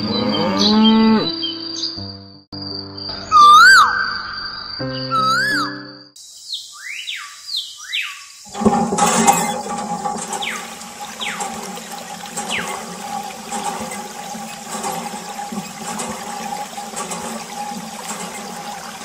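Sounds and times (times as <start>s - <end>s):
water running into bucket: 8.5s - 19.0s.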